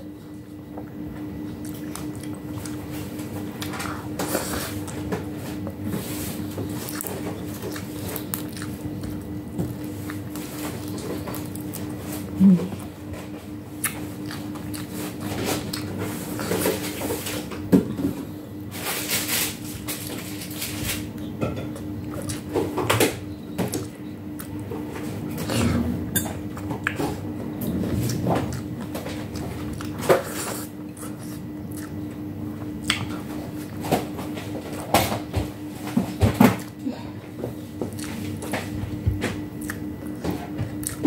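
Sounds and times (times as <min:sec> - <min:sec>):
chewing and mouth sounds: 0:00.8 - 0:05.8, 0:06.6 - 0:17.4, 0:21.2 - 0:22.8, 0:23.6 - 0:33.8, 0:37.8 - 0:41.0.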